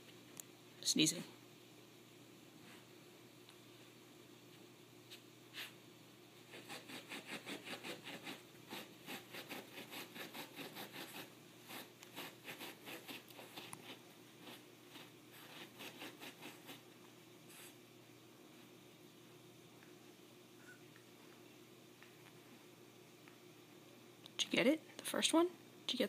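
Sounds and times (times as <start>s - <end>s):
dog claws scratching carpet: 6.5s - 17.8s.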